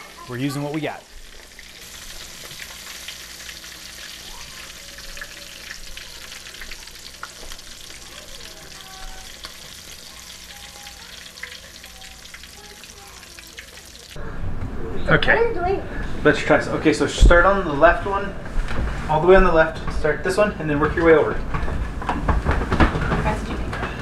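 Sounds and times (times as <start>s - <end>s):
fish sizzling in a pan: 0.0s - 14.2s.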